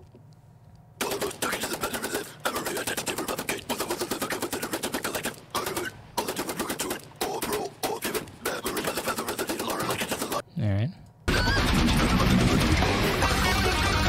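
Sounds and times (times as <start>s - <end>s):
fast metal guitar riff: 11.3s - 14.0s.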